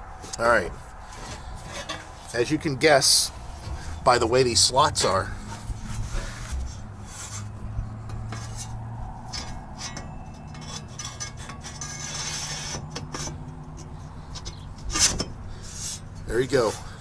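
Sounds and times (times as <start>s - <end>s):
metal panels scraping: 0.2s - 17.0s
metal knocks and taps: 8.0s - 11.9s.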